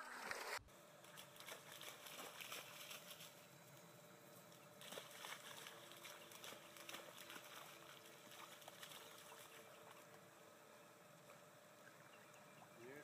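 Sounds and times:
dogs splashing through puddle: 0:01.0 - 0:03.8, 0:04.5 - 0:10.2.

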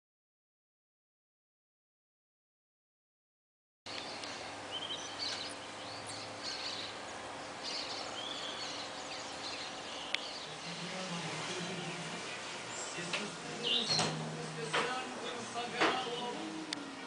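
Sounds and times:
birds chirping: 0:03.9 - 0:17.0
steady background hiss: 0:03.9 - 0:17.0.

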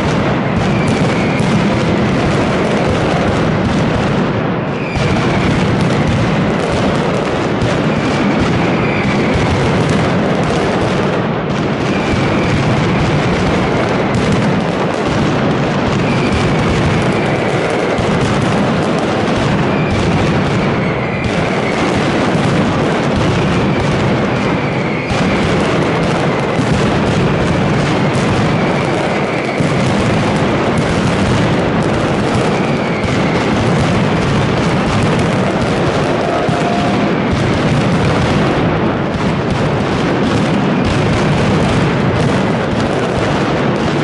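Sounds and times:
firecrackers banging: 0:00.0 - 0:44.0.

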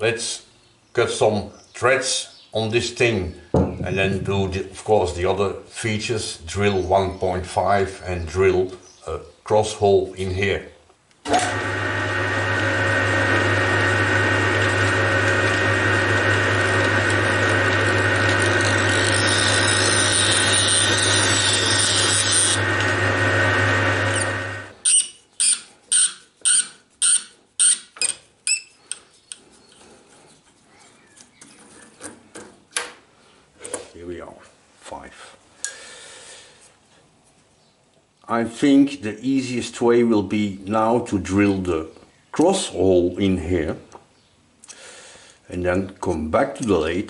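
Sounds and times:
lathe motor humming: 0:11.3 - 0:24.8.

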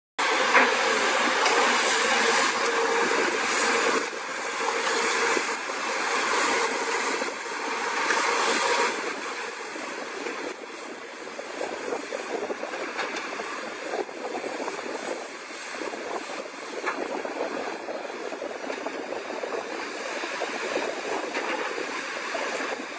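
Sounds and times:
machine whine: 0:00.2 - 0:15.0
excavators running: 0:00.2 - 0:22.9.

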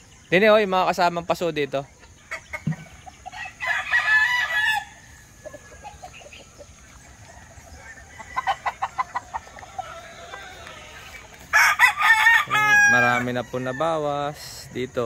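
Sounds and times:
rooster clucking: 0:01.9 - 0:13.4
rooster crowing: 0:03.3 - 0:05.9, 0:07.2 - 0:15.0.

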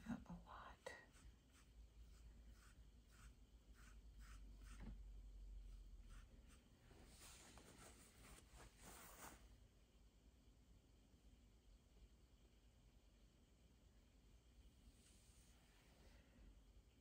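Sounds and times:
paintbrush strokes: 0:01.0 - 0:09.5.

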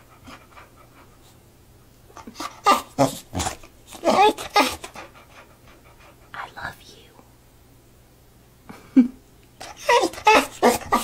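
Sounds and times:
dog moaning vocal sounds: 0:02.2 - 0:05.1, 0:09.6 - 0:11.0.

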